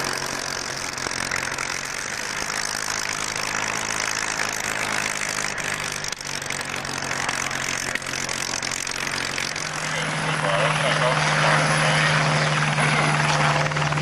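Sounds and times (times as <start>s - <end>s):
propeller aircraft engine running: 0.0s - 14.0s.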